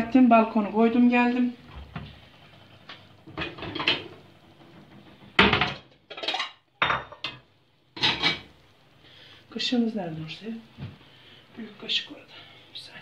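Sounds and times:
dishes and cutlery clattering: 5.5s - 7.4s, 8.0s - 8.5s.

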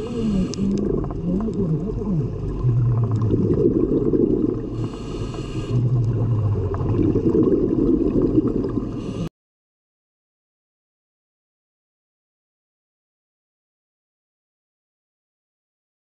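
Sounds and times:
regulator hissing inhale: 0.0s - 1.0s, 4.6s - 6.1s, 8.8s - 9.3s
rumbling exhaled bubbles: 0.0s - 9.3s.

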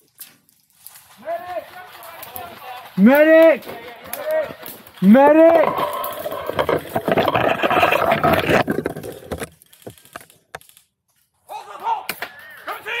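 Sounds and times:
rustling on microphone: 5.0s - 10.2s.

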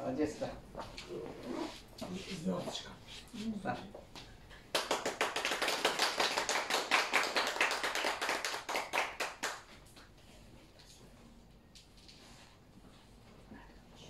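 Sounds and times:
people clapping: 4.2s - 10.1s.

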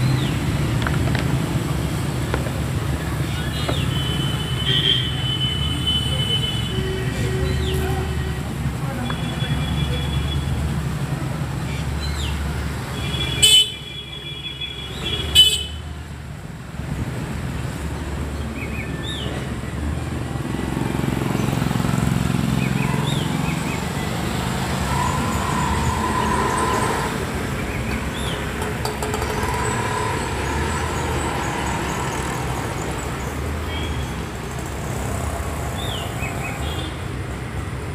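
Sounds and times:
traffic passing: 0.0s - 37.9s
vehicle horn toots: 13.0s - 15.8s.

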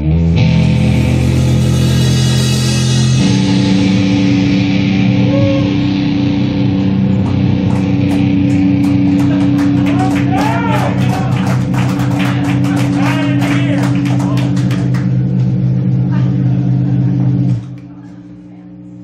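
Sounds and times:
electric guitar: 0.0s - 18.9s
drum kit with crashing cymbals: 0.4s - 6.3s.

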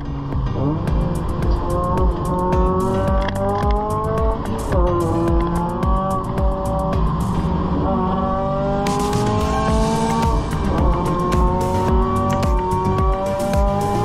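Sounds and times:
car engine revving: 0.0s - 14.0s
gear change: 0.0s - 14.0s.

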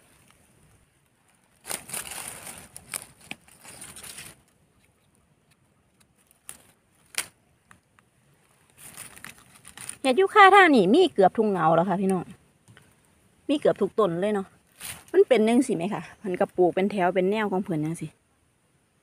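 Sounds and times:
leaf litter crackling and rustling: 0.0s - 4.6s, 6.2s - 13.1s, 14.6s - 15.9s.

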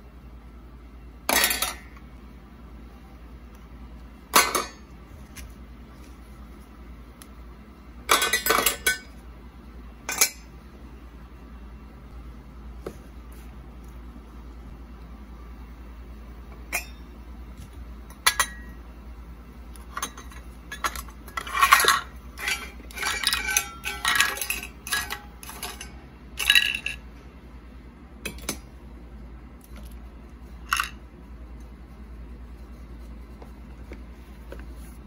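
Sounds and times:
toy cookware clinking and clattering: 1.3s - 1.9s, 8.1s - 9.1s, 10.1s - 10.5s, 19.9s - 27.0s, 30.6s - 31.0s.

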